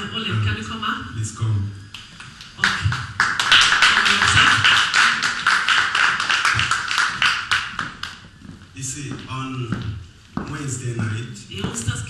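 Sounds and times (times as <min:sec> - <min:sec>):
crowd clapping: 0:02.0 - 0:08.3.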